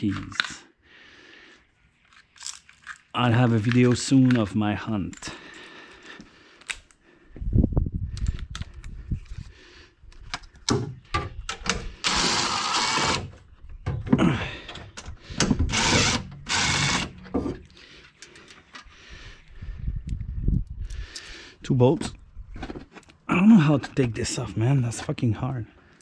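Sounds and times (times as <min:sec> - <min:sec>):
knocks of tools and metal parts: 0:10.6 - 0:11.9
impact driver bursts: 0:11.7 - 0:13.3, 0:15.3 - 0:17.5.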